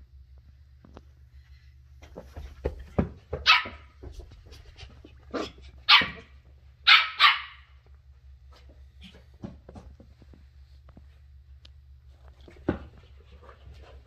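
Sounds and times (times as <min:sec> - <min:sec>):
puppy barking: 0:03.4 - 0:03.9, 0:05.4 - 0:07.8.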